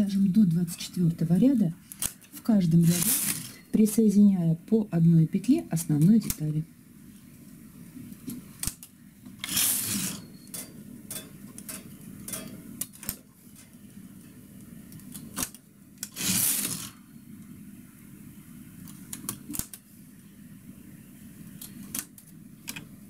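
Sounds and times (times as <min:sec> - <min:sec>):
knitting machine carriage sliding: 0:02.8 - 0:03.7, 0:09.4 - 0:10.3, 0:16.0 - 0:17.0
transfer tool clicking on needles: 0:06.0 - 0:06.6.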